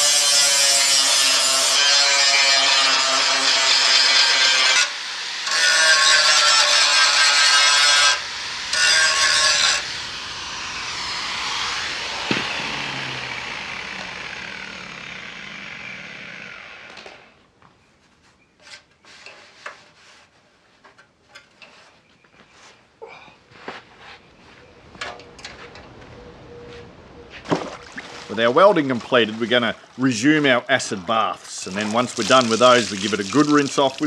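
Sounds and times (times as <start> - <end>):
angle grinder grinding steel: 0.0 - 17.4, 31.5 - 34.0.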